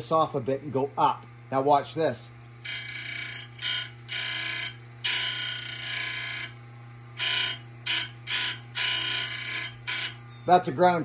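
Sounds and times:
low hum of grinder motor: 0.0s - 11.0s
grinding wheel screech on metal: 2.6s - 6.6s, 7.2s - 11.0s.

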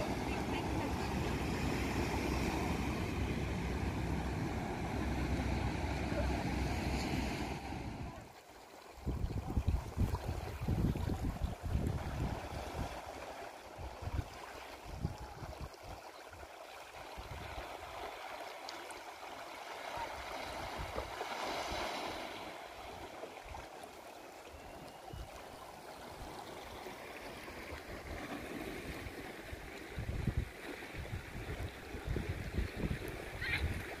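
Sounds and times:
sea water gurgling over rocks: 7.2s - 34.0s.

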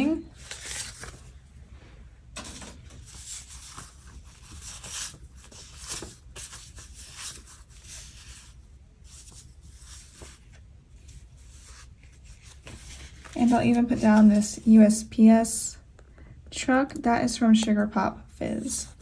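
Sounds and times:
paper crinkling and peeling: 0.3s - 1.4s, 2.6s - 14.6s.

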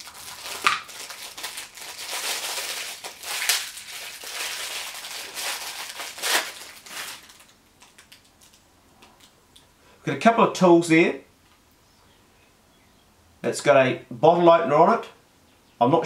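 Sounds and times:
plastic packaging crinkling: 0.0s - 9.7s.

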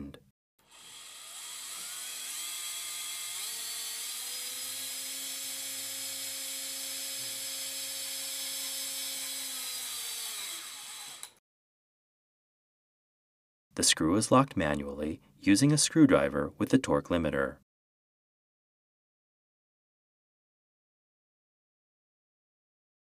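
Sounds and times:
power drill motor: 0.6s - 11.4s.

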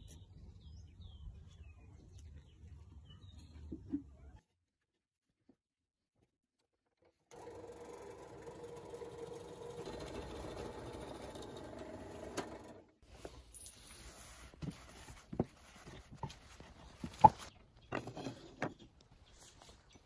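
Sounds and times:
drill press humming: 7.3s - 13.0s.

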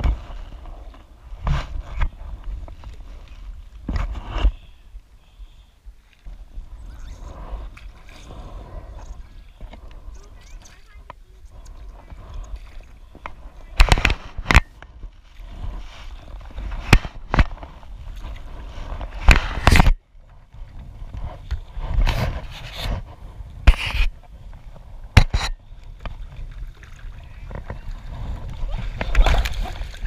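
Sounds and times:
paddle knocks and splashes: 25.1s - 30.0s.

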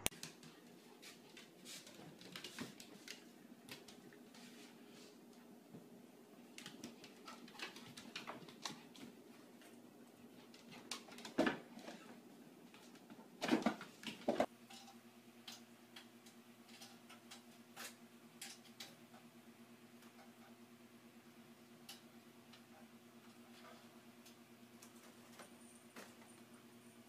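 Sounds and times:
paws and claws on hard floor: 0.1s - 5.9s, 6.5s - 14.5s.

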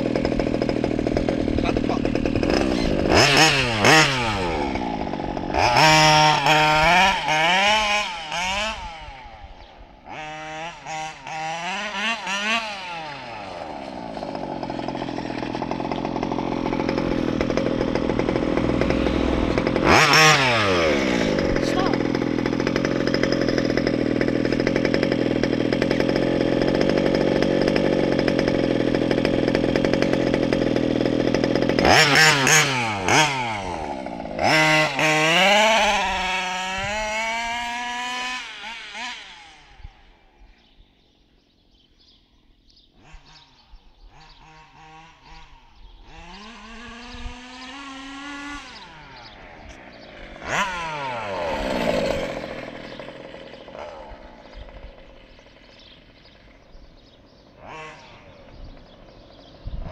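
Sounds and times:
rc buggy engine revving: 0.0s - 42.1s, 42.7s - 59.9s.

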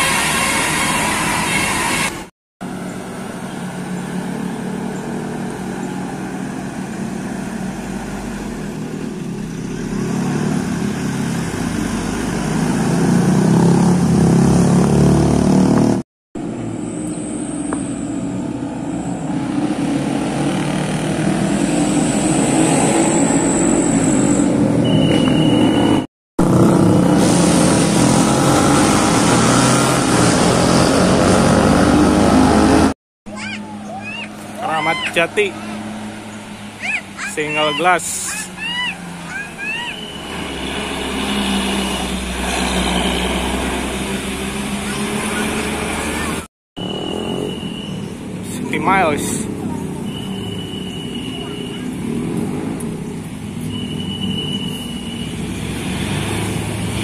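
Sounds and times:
diesel bus engines running: 0.0s - 57.0s.

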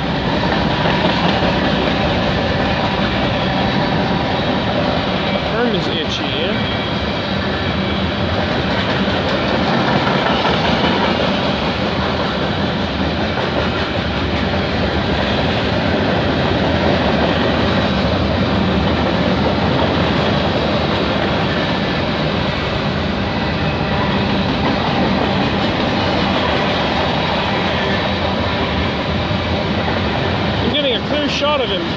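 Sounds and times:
steel wheels clattering on rails: 0.0s - 6.7s, 8.3s - 22.4s
freight train rolling past: 0.0s - 31.9s.

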